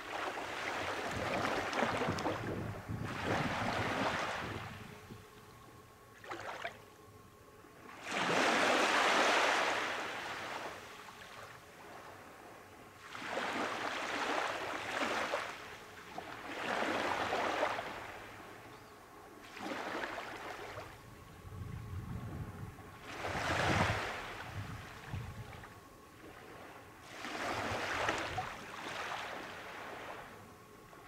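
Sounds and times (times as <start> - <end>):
small waves breaking on beach: 0.0 - 4.9, 6.2 - 6.7, 7.9 - 12.4, 13.0 - 18.6, 19.4 - 21.0, 23.0 - 30.4.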